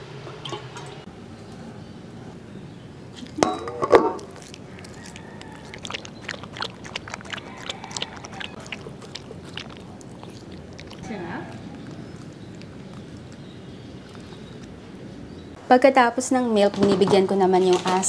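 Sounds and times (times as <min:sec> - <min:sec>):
dog lapping from metal bowl: 0:03.3 - 0:15.5.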